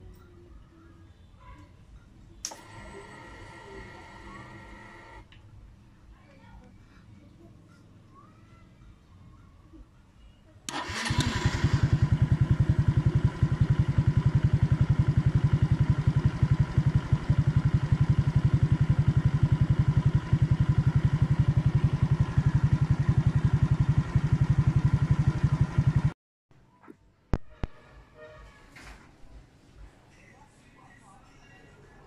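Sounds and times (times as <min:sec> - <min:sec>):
electric starter turning engine: 0:02.4 - 0:05.3, 0:10.7 - 0:26.2
motorcycle engine idling: 0:02.8 - 0:05.2, 0:10.7 - 0:26.2.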